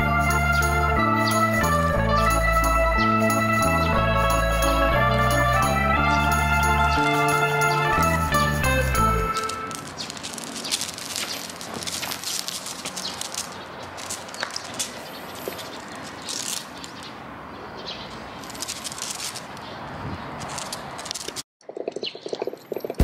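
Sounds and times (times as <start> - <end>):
birds chirping: 0.0 - 18.6
small clicks and rustles: 9.4 - 17.1, 18.4 - 19.7, 20.4 - 21.4.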